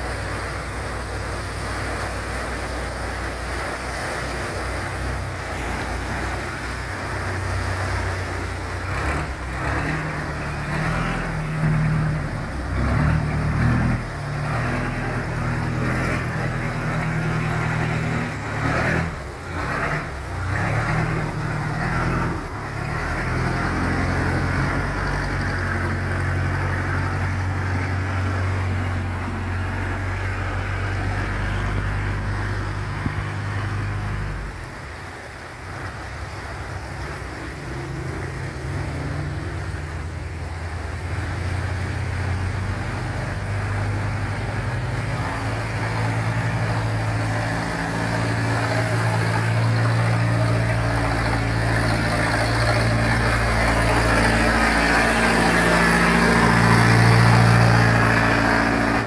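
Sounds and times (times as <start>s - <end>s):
boat engines running hard: 0.0s - 59.0s
water rushing through a gate: 0.0s - 59.0s.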